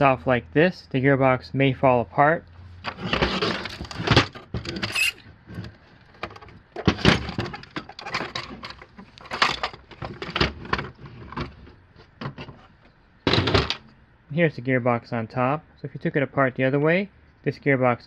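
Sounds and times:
hard plastic knocking and scraping: 0:02.8 - 0:12.7.

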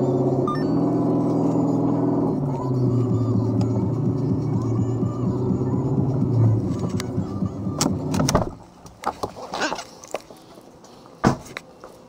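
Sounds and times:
car engine idling: 0:00.0 - 0:08.8
car door shutting: 0:06.4 - 0:08.6.

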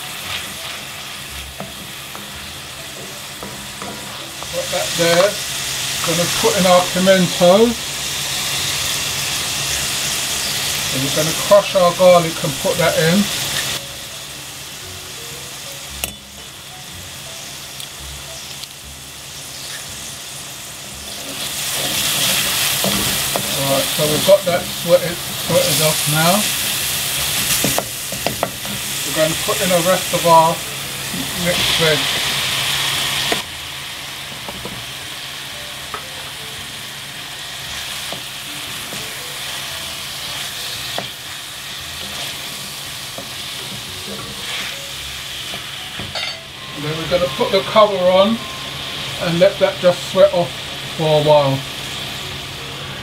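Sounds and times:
onions sizzling in oil: 0:00.0 - 0:53.0
wooden spoon stirring pan: 0:21.3 - 0:30.4.

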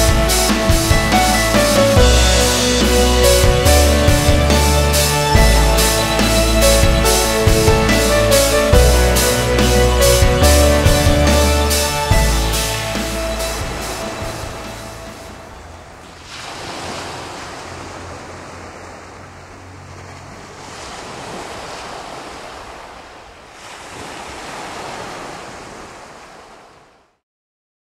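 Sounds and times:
music: 0:00.0 - 0:15.7
sea waves washing onto shore: 0:00.0 - 0:27.2.

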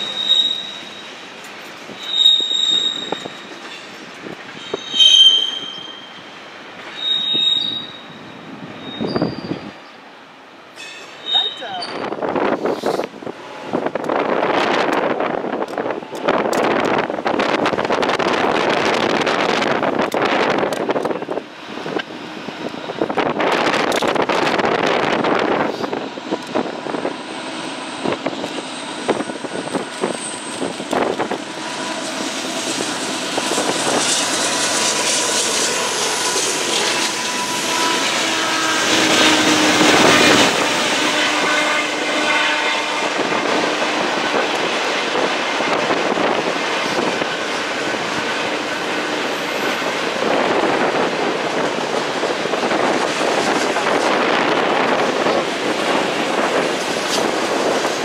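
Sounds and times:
diesel locomotives passing: 0:00.0 - 0:58.0
train wheel clatter: 0:27.8 - 0:42.3, 0:42.9 - 0:58.0.

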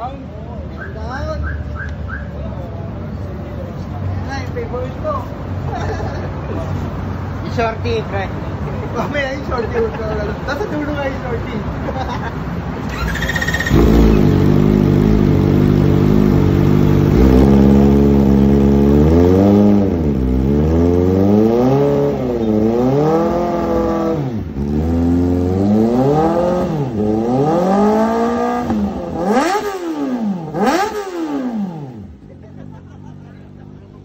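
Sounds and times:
motorcycle engine revving: 0:12.8 - 0:33.9.

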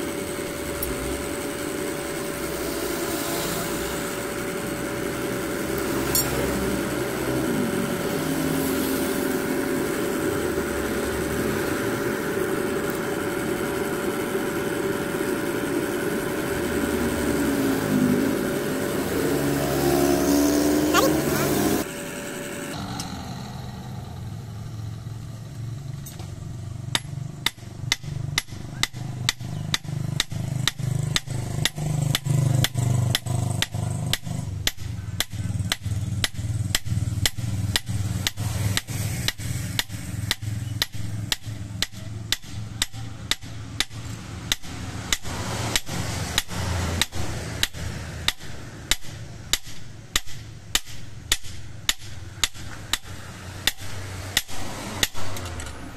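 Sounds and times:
low hum: 0:00.0 - 0:27.4
hammer striking metal blade on anvil: 0:06.0 - 0:06.6, 0:27.0 - 0:55.4.

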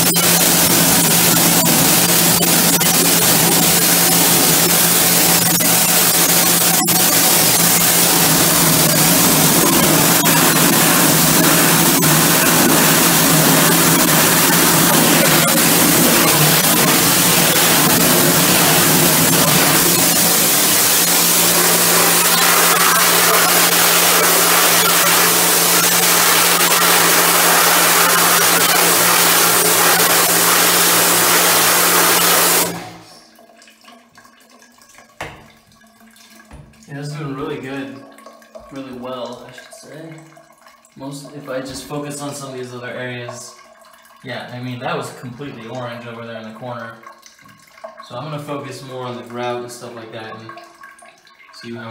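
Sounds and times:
power washer spraying tiles: 0:00.0 - 0:33.0
even hum: 0:00.0 - 0:33.4.

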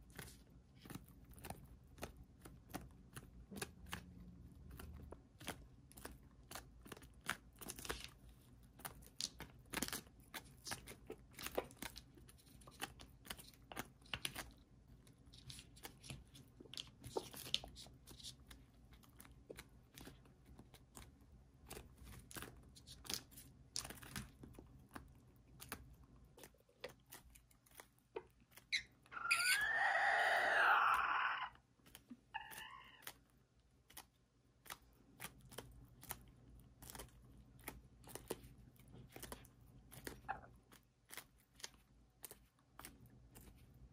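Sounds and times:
beaks pecking cabbage leaves: 0:00.0 - 0:43.9
rooster crowing: 0:29.2 - 0:31.6.

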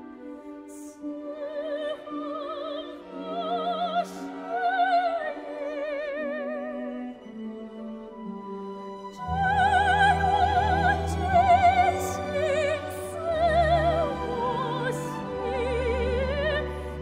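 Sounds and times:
sustained orchestral accompaniment: 0:00.0 - 0:17.0
soprano singing with vibrato: 0:00.1 - 0:08.5, 0:09.1 - 0:17.0.

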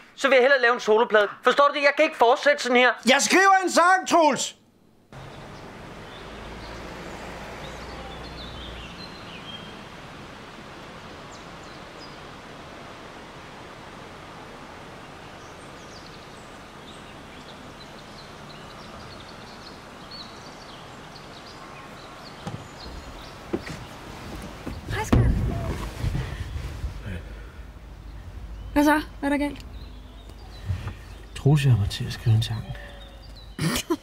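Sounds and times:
street background noise: 0:04.6 - 0:34.0
birds chirping: 0:05.1 - 0:34.0
car door opening knocks: 0:22.4 - 0:25.9.

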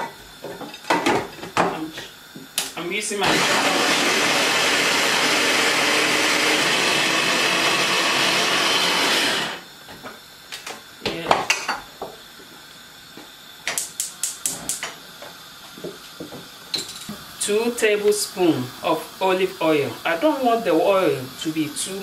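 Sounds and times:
electric food chopper running: 0:03.2 - 0:09.7.

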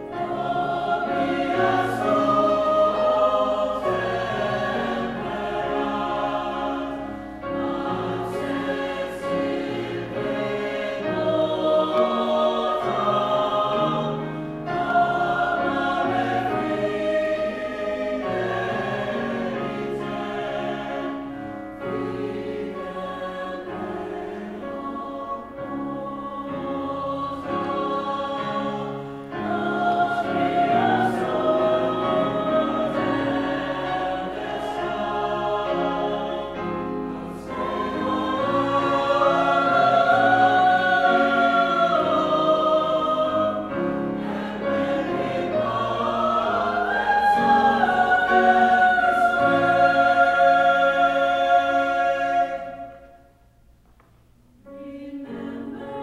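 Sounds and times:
mixed choir singing: 0:00.0 - 0:53.4, 0:54.6 - 0:56.0
grand piano accompaniment: 0:00.0 - 0:56.0.

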